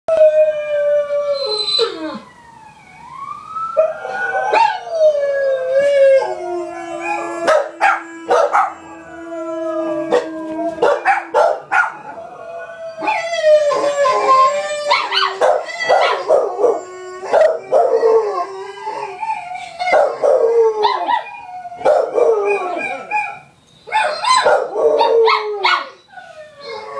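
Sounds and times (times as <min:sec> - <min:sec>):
hound howling: 0:03.8 - 0:26.9
dog barking: 0:07.5 - 0:08.8, 0:10.8 - 0:12.0, 0:21.8 - 0:22.2, 0:24.0 - 0:24.7.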